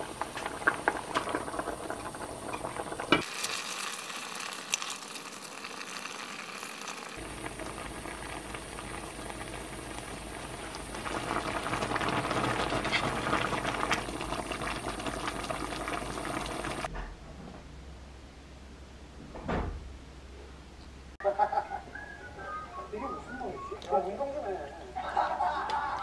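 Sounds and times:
broth boiling and bubbling: 0.0 - 16.9.

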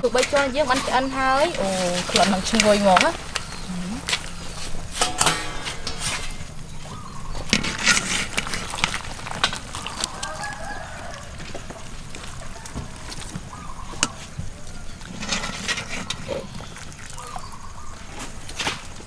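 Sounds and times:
wire strainer clinking on metal: 4.9 - 6.6
rooster crowing: 9.8 - 15.1.

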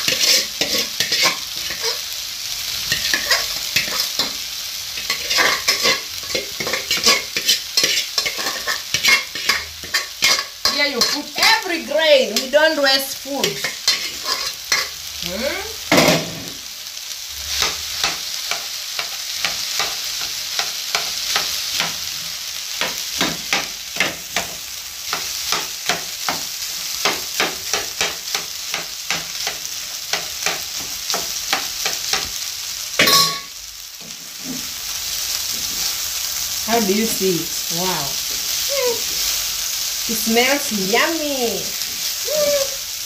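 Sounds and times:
spatula tapping and scraping pan: 0.0 - 2.0, 2.9 - 4.4, 5.0 - 11.4, 13.4 - 14.9, 22.7 - 32.4
rice sizzling in a frying pan: 0.0 - 43.0.

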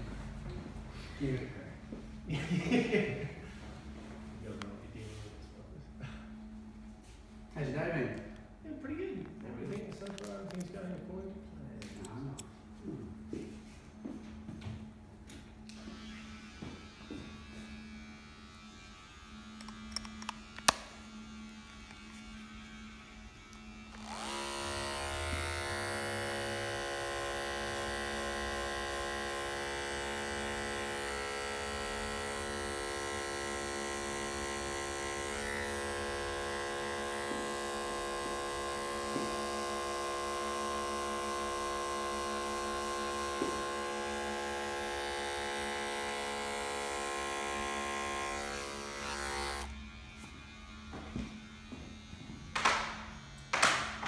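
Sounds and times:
hair clipper buzzing: 15.6 - 54.0.

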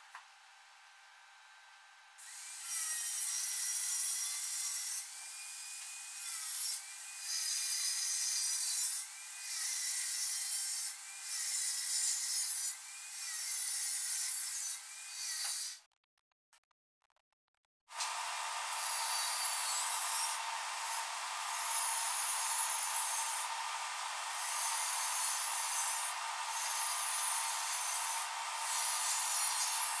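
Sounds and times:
angle grinder grinding steel: 18.0 - 30.0.

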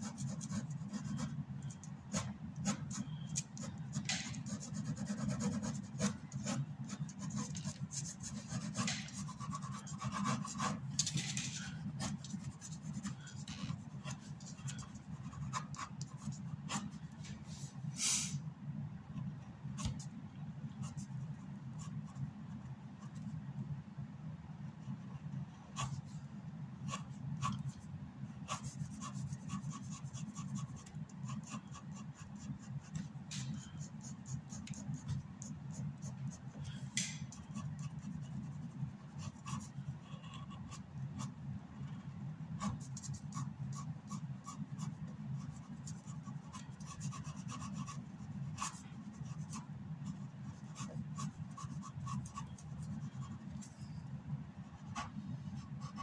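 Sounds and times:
pen scratching on paper: 0.0 - 17.0, 24.8 - 26.2, 26.8 - 27.8, 28.4 - 36.5, 37.3 - 41.3, 42.6 - 54.0, 54.7 - 56.0.

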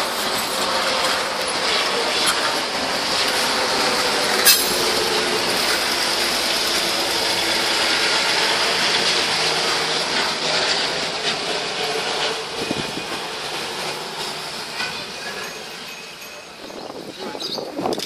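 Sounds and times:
railcar wheels rattling and clanking: 0.0 - 18.0.

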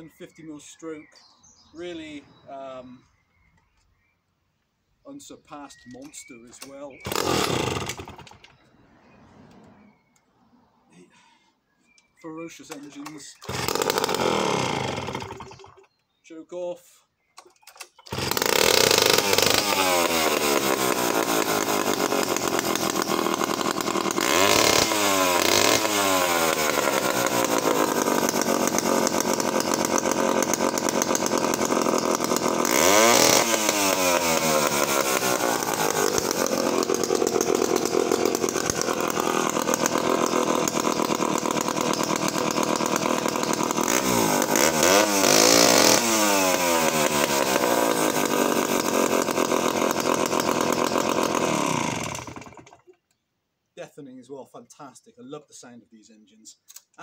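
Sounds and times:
chainsaw engine revving: 6.5 - 9.8, 12.6 - 16.0, 17.7 - 53.0.

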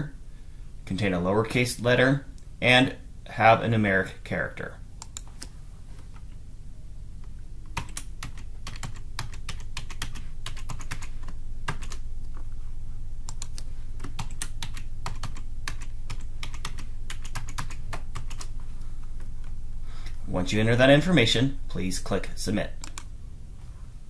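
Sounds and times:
steady low hum: 0.0 - 24.0
keyboard typing clicks: 7.7 - 12.0, 13.3 - 18.5, 22.8 - 23.1.

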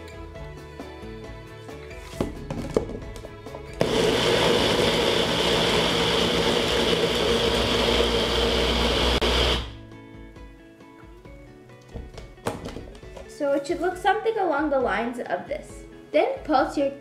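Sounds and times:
blender motor grinding: 3.8 - 9.8.

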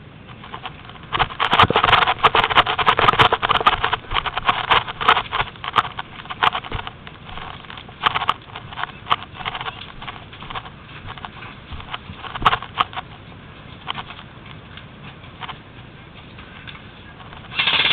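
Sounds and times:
dry brush crunching and rustling: 0.3 - 14.3
footsteps: 0.3 - 17.6.

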